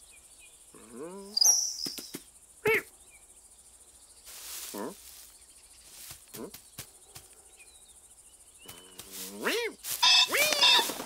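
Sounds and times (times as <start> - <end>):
insects chirping: 0.0 - 11.0
grass rustling: 3.9 - 7.5, 8.2 - 11.0
cartoon cat noises: 9.3 - 10.9.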